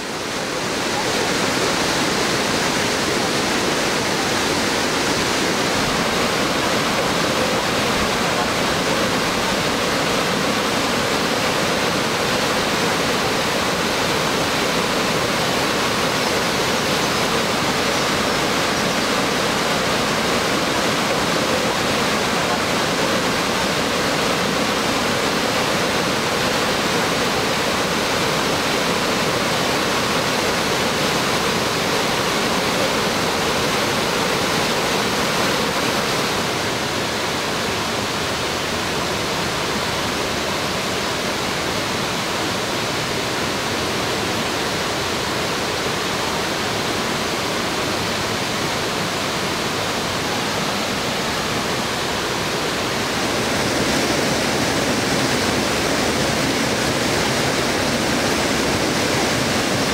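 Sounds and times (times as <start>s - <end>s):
waterfall rushing over rocks: 0.0s - 59.9s.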